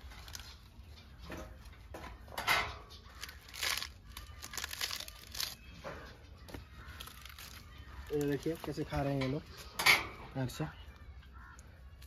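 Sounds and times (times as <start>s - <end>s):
cabbage leaves tearing and crumpling: 0.0s - 0.7s, 3.0s - 5.7s, 6.5s - 9.0s.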